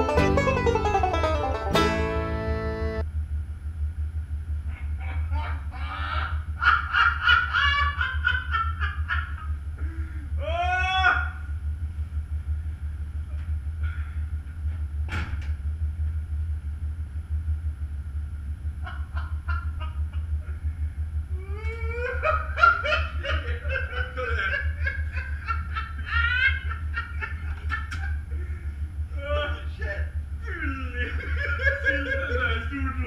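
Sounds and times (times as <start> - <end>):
low machinery drone: 0.0 - 33.0
people laughing: 4.7 - 9.6, 18.8 - 20.6, 21.4 - 33.0.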